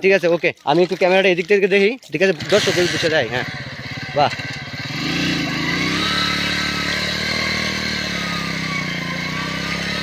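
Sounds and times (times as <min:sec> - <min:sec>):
motorcycle engine revving: 0:02.2 - 0:10.0.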